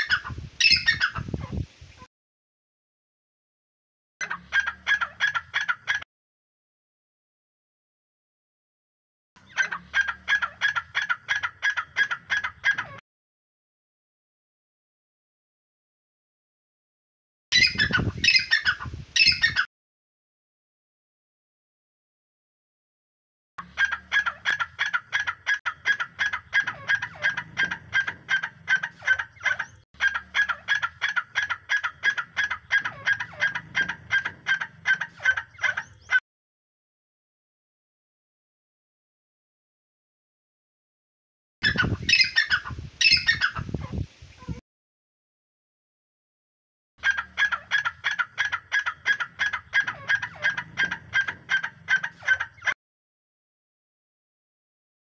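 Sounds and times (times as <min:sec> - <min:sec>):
recorded francolin call: 0:00.0 - 0:02.1, 0:04.2 - 0:06.0, 0:09.4 - 0:13.0, 0:17.5 - 0:19.7, 0:23.6 - 0:36.2, 0:41.6 - 0:44.6, 0:47.0 - 0:52.8.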